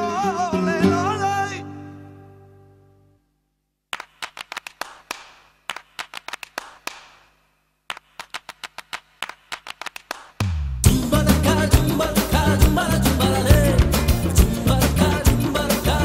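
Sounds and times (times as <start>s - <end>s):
background music: 0.0s - 3.1s, 10.5s - 16.0s
rhythmic hand clapping: 3.9s - 16.0s.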